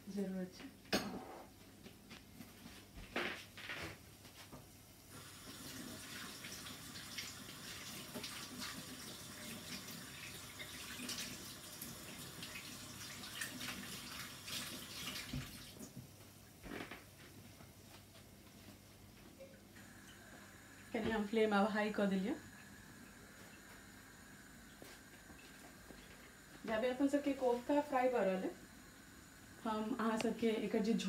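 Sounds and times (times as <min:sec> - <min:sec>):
deep-frying sizzle in oil: 0:05.1 - 0:15.9.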